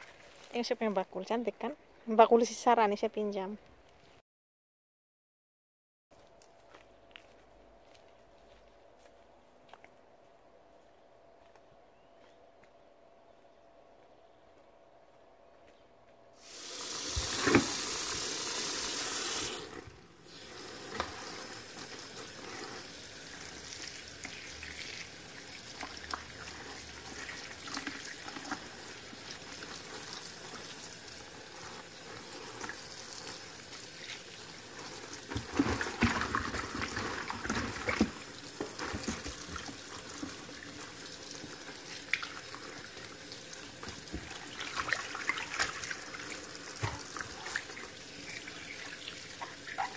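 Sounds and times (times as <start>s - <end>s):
loud hiss: 16.4s - 19.6s
hands washing leaves splashing: 16.4s - 49.9s
tap water running into bowl: 16.5s - 19.8s.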